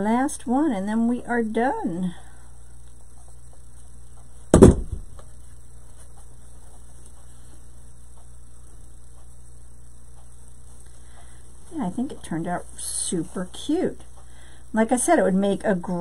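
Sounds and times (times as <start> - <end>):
electrical mains hum: 0.0 - 16.0
loud thump: 4.5 - 5.2
faint small ticks: 5.3 - 12.2.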